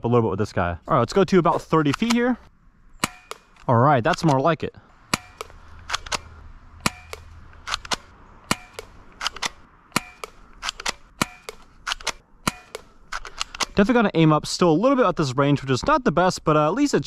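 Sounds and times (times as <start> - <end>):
airsoft pistol firing clacks: 3.0 - 4.4, 5.1 - 13.8.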